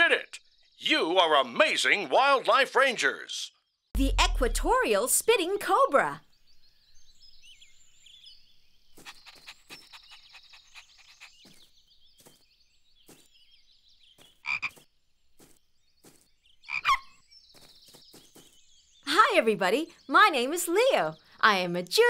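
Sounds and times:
frogs croaking: 0:14.2 - 0:14.8, 0:16.0 - 0:17.2.

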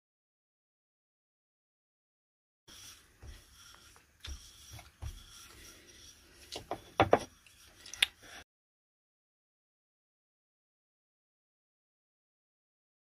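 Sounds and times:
rolling pin rubbing on dough: 0:02.7 - 0:08.4
rolling pin knocks and clicks: 0:06.5 - 0:07.3.

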